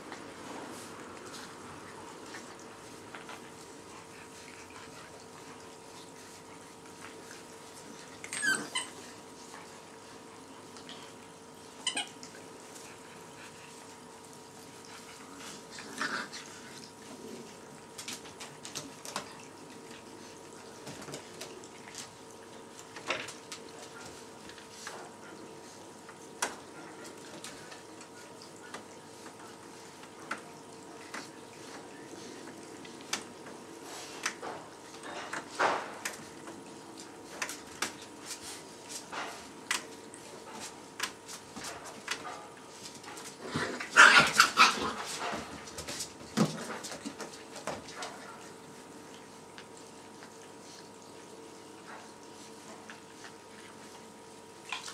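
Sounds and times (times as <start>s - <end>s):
puppies whining and squeaking: 8.2s - 9.1s, 11.8s - 12.2s.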